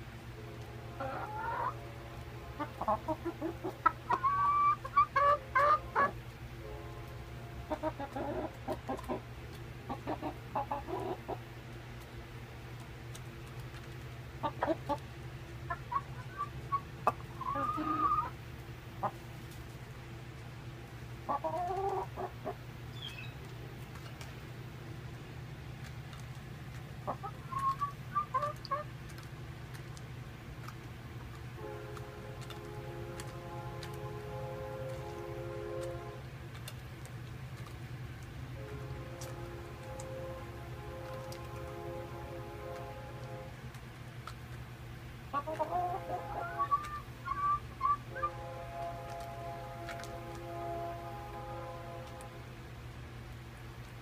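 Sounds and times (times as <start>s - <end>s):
hens clucking: 0.4s - 6.4s, 7.0s - 19.8s, 20.9s - 52.4s
low hum: 29.0s - 54.0s.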